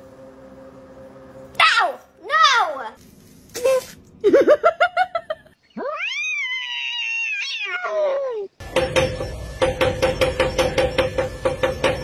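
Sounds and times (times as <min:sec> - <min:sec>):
cat meowing: 0:05.8 - 0:08.5
cat yowling: 0:05.8 - 0:08.6.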